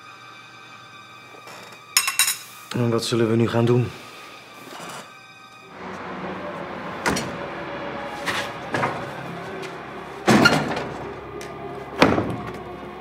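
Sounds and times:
doors banging shut: 0:05.8 - 0:13.0.

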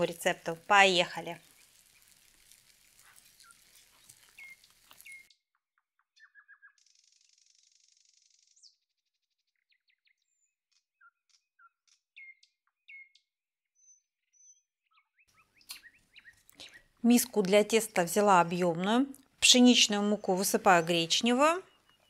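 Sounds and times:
faint bird chirping: 0:01.2 - 0:05.4, 0:06.0 - 0:09.0, 0:09.6 - 0:13.2, 0:13.8 - 0:17.9, 0:19.5 - 0:22.0.

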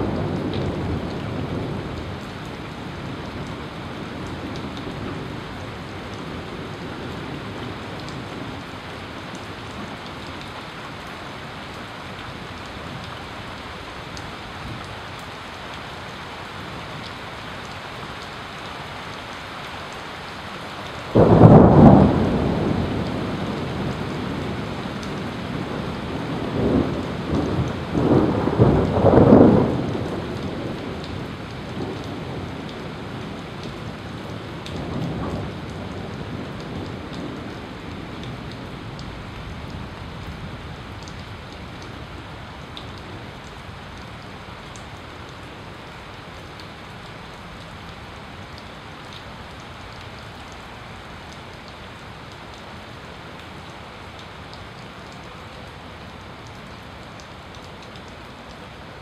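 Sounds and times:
steady rain: 0:00.0 - 0:59.0
thunder rumbling: 0:21.2 - 0:34.0.

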